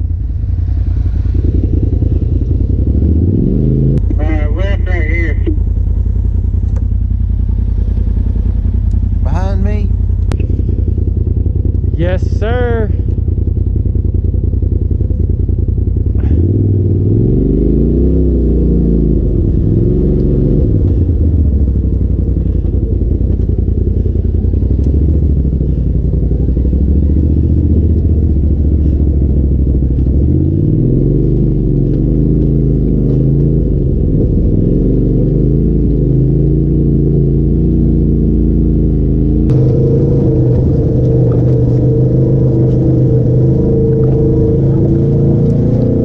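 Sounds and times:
off-road vehicle engine running: 0:00.0 - 0:46.0.

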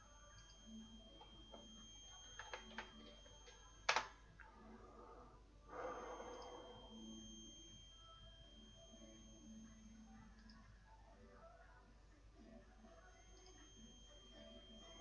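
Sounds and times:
faint high-pitched whine: 0:00.0 - 0:15.0
breathy exhale: 0:04.7 - 0:07.0
faint clicks: 0:10.3 - 0:10.7.

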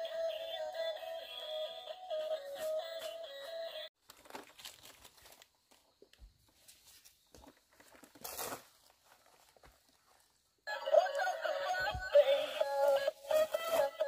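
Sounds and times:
background music melody: 0:00.0 - 0:03.9, 0:10.7 - 0:14.0.

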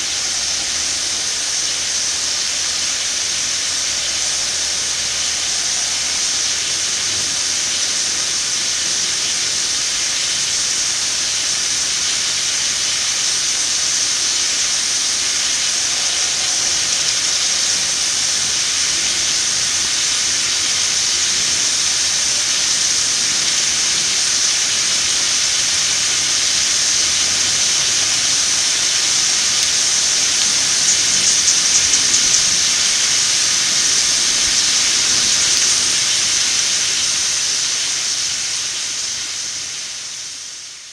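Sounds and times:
water spraying hiss: 0:00.0 - 0:40.9
rapid ticks: 0:30.4 - 0:32.6.

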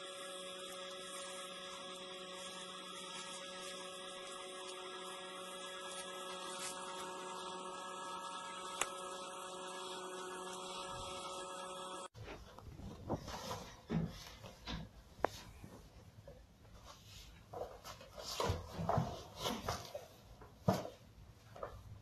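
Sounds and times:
steady hum of held tones: 0:00.0 - 0:12.2.

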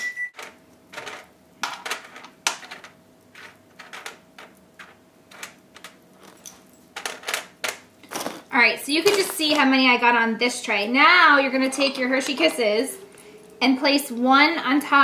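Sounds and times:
pretzels rattling on a metal sheet: 0:00.9 - 0:09.9.

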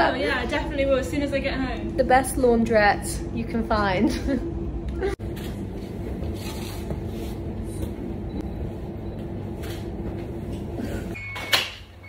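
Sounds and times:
washing machines and dryers rumbling: 0:00.0 - 0:12.0.

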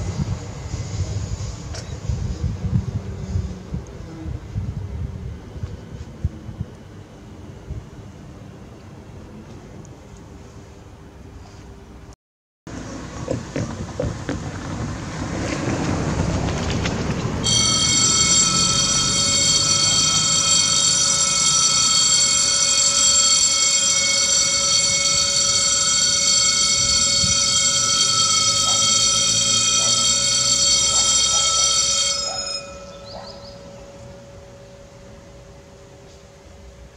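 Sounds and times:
car driving over crossing: 0:12.7 - 0:20.4
level crossing warning bell: 0:17.4 - 0:36.9.

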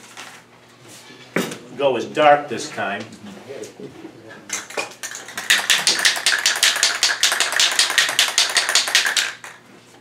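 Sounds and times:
spray can ball rattling: 0:04.5 - 0:09.6.

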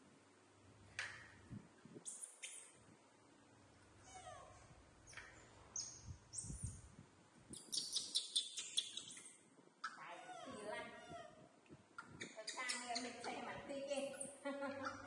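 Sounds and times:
young macaques squeaking and chirping: 0:07.5 - 0:11.4, 0:14.2 - 0:15.0.

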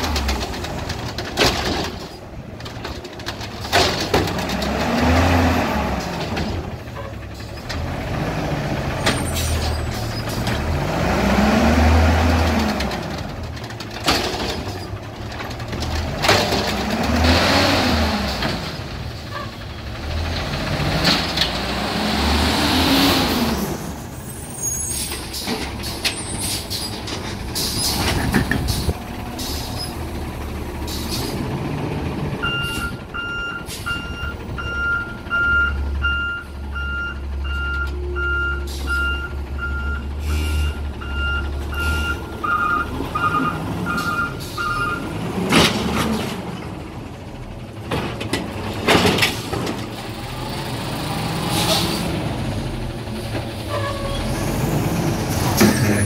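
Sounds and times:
garbage truck engine revving: 0:00.0 - 0:56.0.

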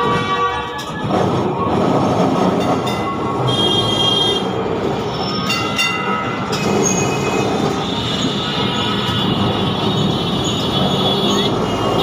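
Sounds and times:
tram wheels rumbling on rails: 0:00.0 - 0:12.0
high-pitched wheel squeal: 0:03.5 - 0:12.0.

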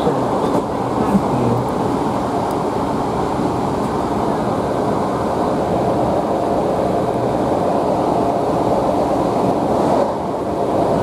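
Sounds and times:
diesel engine drone: 0:00.0 - 0:11.0
wheels rumbling on rails: 0:00.0 - 0:11.0.

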